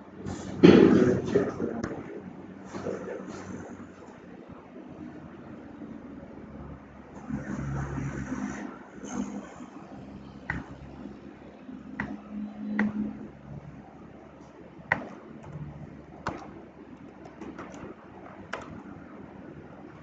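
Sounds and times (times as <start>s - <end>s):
mouse and keyboard clicks: 14.9s - 17.9s, 18.5s - 18.8s.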